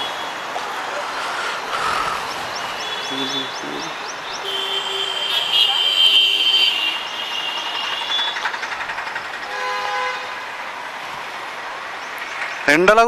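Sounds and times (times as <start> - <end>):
busy street traffic: 0.0 - 13.0
vehicle horn: 4.4 - 8.4, 9.5 - 10.4.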